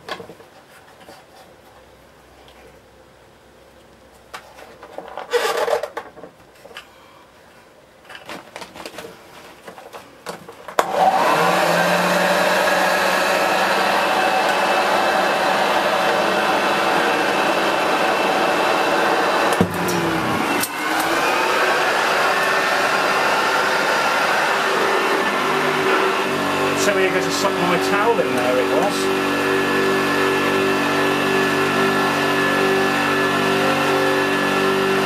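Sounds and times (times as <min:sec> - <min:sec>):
vacuum cleaner motor running: 0:10.8 - 0:35.0.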